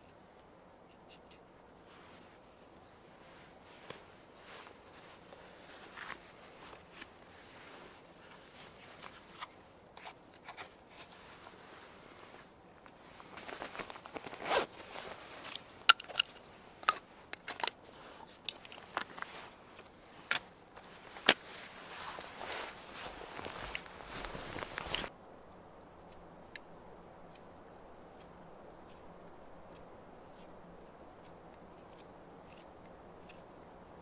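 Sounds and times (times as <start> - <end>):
faint scraping and rustling: 0.8 - 25.1.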